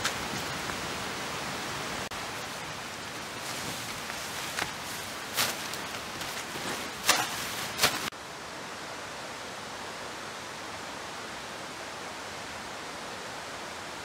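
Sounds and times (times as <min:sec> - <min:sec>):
plastic tarp rustling: 0:02.5 - 0:08.1.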